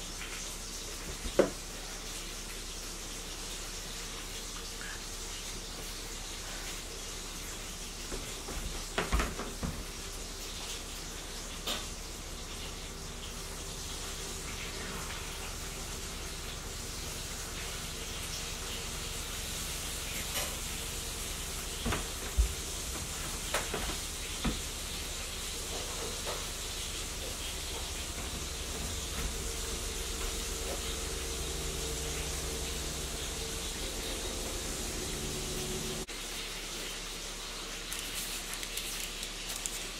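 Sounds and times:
low hum: 13.8 - 36.1.

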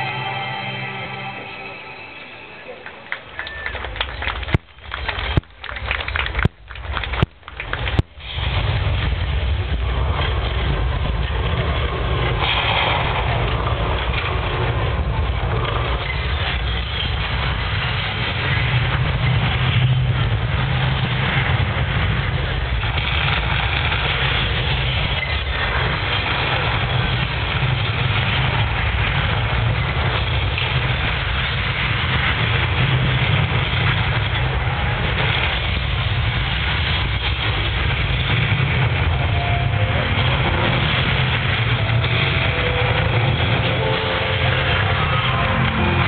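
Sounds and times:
held musical notes: 0.0 - 3.7, 39.1 - 46.0
low rumble over loudspeakers: 0.0 - 46.0
noisy hiss: 0.0 - 46.0.

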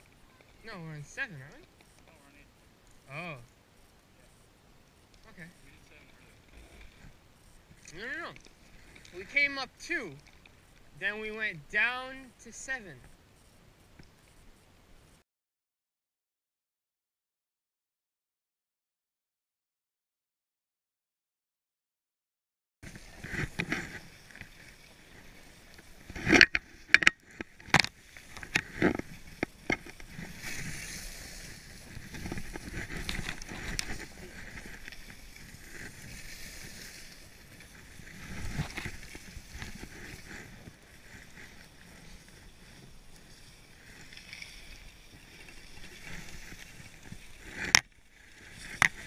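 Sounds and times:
sharp knocks and scrapes: 22.8 - 42.6
skis scraping over snow: 22.8 - 49.0.

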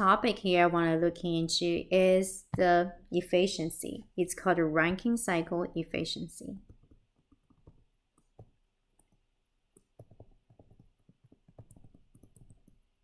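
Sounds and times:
stylus tapping tablet screen: 2.4 - 2.8, 6.6 - 13.0.

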